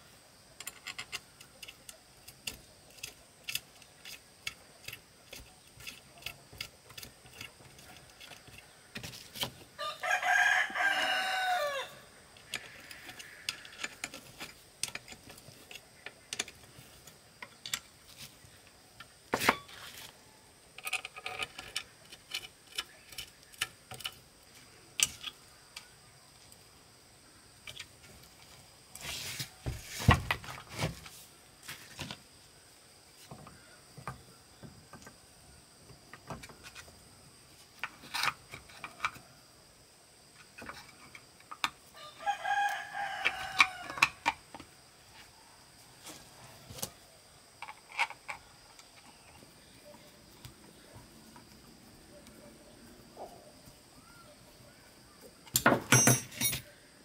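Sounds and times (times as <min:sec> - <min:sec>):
rooster crowing: 0:09.8 - 0:12.2, 0:42.0 - 0:44.2.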